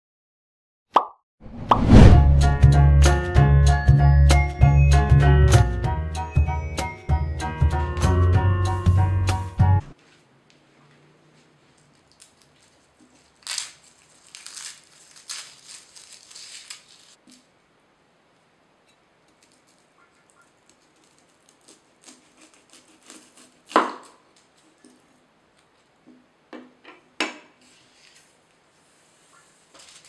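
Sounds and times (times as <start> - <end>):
garlic skin crackling: 11.7 - 17.5, 19.3 - 25.9.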